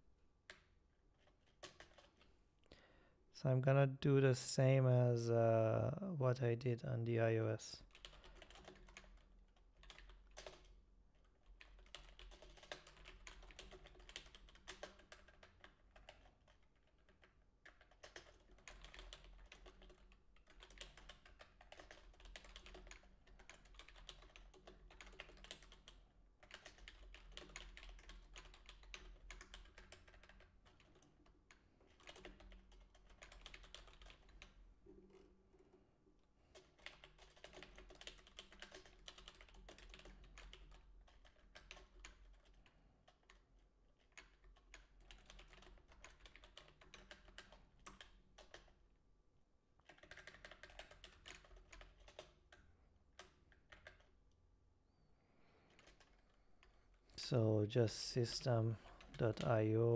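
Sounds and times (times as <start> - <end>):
computer keyboard typing: 1.3 - 2.3, 7.8 - 10.7, 11.5 - 34.6, 36.5 - 48.8, 49.8 - 54.2, 55.7 - 56.8, 58.1 - 59.8.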